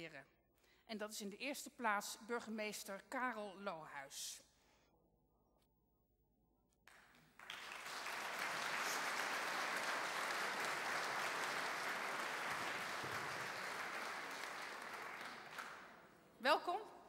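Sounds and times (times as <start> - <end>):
audience applauding: 6.9 - 16.1.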